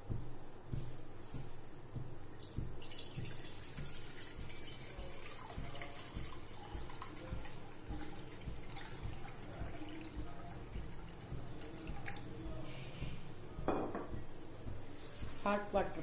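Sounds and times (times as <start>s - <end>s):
low irregular thumping: 0.0s - 16.0s
water pouring into a saucepan: 2.4s - 12.4s.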